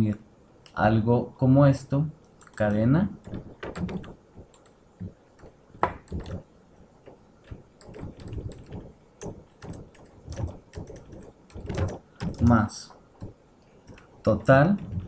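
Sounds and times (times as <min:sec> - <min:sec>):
computer keyboard typing: 0:02.4 - 0:06.4, 0:07.0 - 0:15.0.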